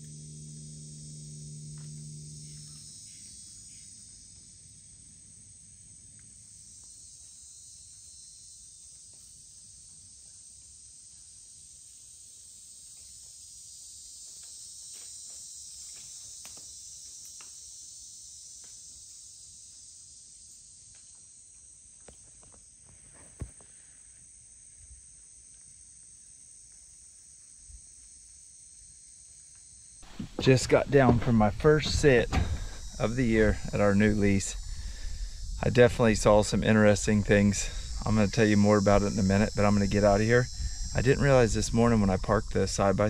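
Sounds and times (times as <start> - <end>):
insects trilling: 0.0 - 43.0
faint ticks and rustles: 14.2 - 17.8, 18.5 - 28.4.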